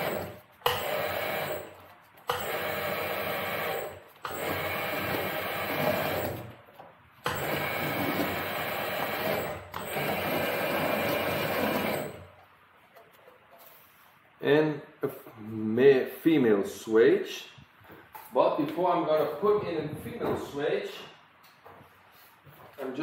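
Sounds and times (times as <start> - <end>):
electric swaging machine running: 0.0 - 6.6, 7.2 - 12.3.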